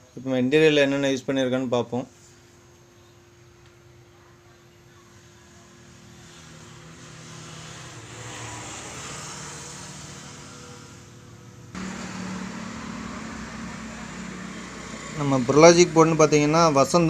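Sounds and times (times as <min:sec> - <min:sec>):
vehicle passing: 0:06.0 - 0:17.0
steady low hum: 0:09.0 - 0:17.0.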